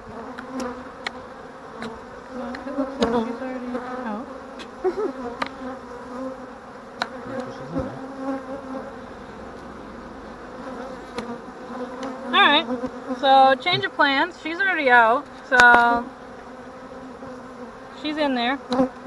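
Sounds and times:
bees buzzing: 0:00.0 - 0:19.0.

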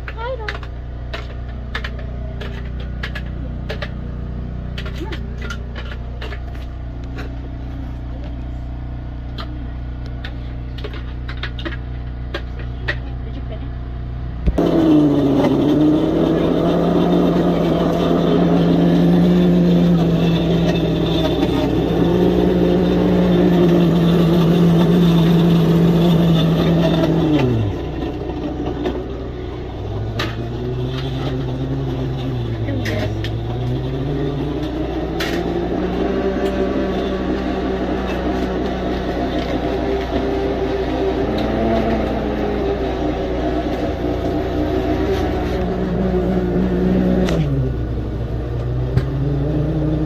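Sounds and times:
low wavering motor hum: 0:00.0 - 0:50.0
motor running and winding down: 0:14.5 - 0:50.0.

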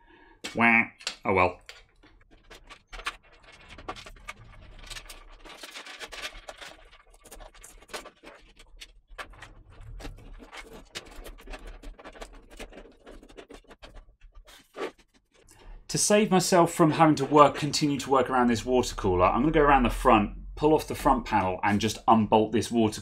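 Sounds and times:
small clicks and knocks: 0:00.4 - 0:15.6
cables scraping metal case: 0:01.6 - 0:15.7.

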